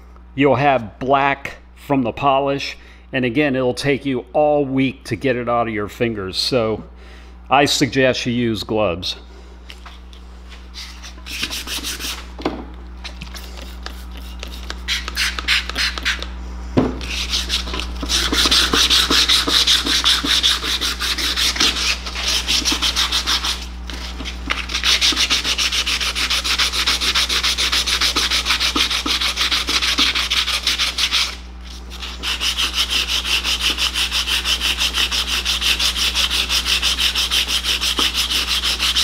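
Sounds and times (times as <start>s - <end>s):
sandpaper rubbing on metal: 10.7s - 12.3s, 13.4s - 16.3s, 17.0s - 39.0s.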